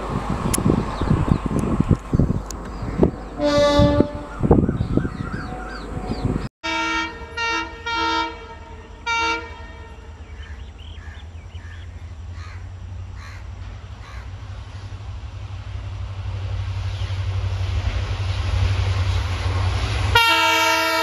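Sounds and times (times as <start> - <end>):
locomotive engine rumble: 0.0 - 21.0
locomotive horn blasts: 3.4 - 4.5, 5.5 - 10.3, 20.1 - 21.0.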